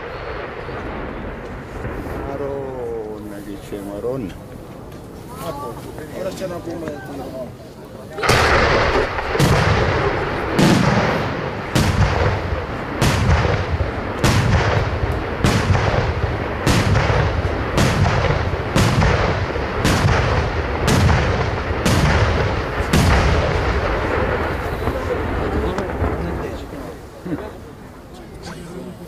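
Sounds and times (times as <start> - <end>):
firework shells bursting: 8.2 - 27.6.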